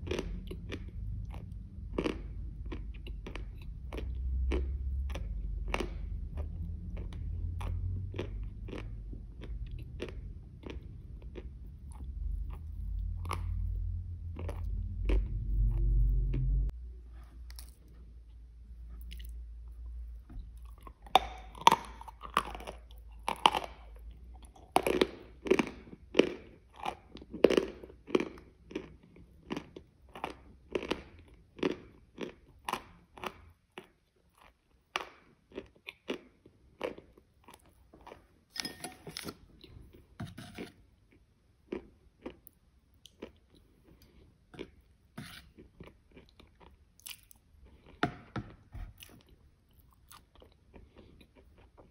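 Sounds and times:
crunchy chewing: 0.0s - 16.5s, 18.8s - 38.4s, 48.9s - 51.9s.

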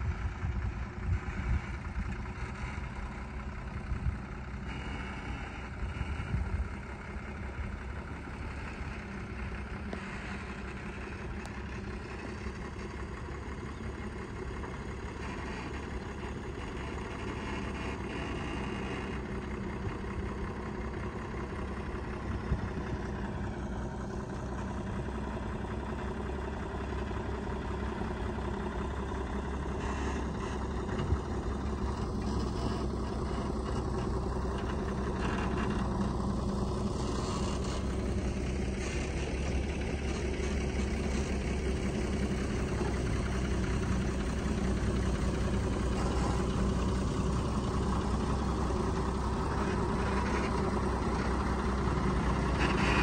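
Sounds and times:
truck diesel engine running: 0.0s - 53.0s.

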